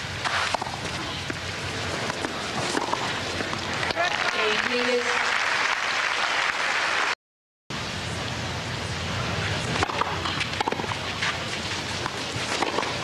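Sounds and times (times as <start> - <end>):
racquets striking ball: 0.2 - 4.0, 9.8 - 13.0
crowd hum: 0.4 - 4.6, 8.0 - 13.0
crowd applauding: 3.8 - 7.2.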